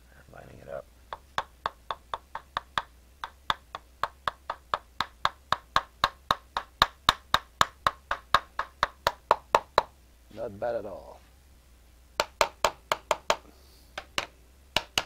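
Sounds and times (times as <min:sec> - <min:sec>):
hammer tapping brass tube: 0:01.1 - 0:10.0, 0:14.0 - 0:15.0.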